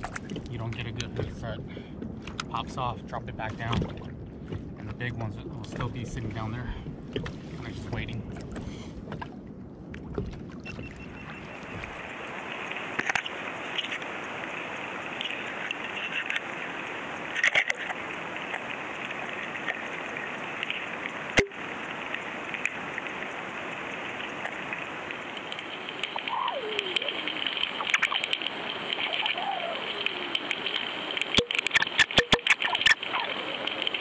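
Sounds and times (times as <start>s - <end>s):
water hissing against camera housing: 11.6s - 34.0s.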